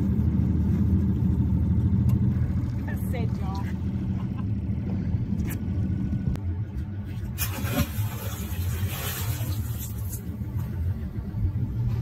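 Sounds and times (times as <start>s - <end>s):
outboard motor running: 0.0s - 11.8s
rope and net splashing into water: 7.1s - 10.4s
water hissing and churning: 7.1s - 10.6s.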